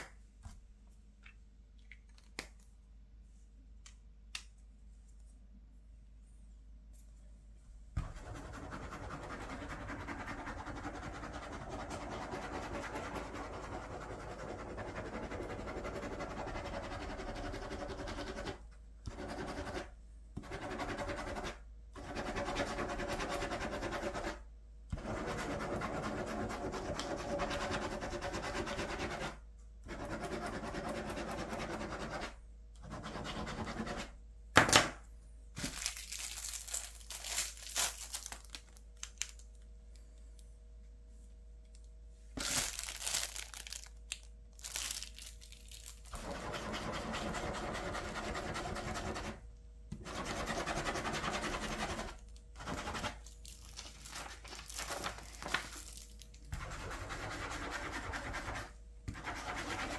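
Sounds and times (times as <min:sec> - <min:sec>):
ballpoint pen scratching on paper: 0:08.0 - 0:34.1, 0:46.2 - 0:49.4, 0:50.0 - 0:53.2, 0:56.6 - 0:59.9
plastic sleeve crinkling: 0:35.6 - 0:39.7, 0:42.4 - 0:46.2, 0:53.2 - 0:56.5.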